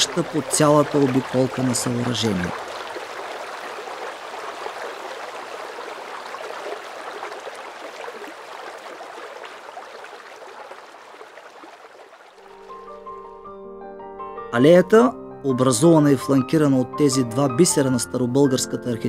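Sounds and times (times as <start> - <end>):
fountain water splashing: 0.0 - 12.6.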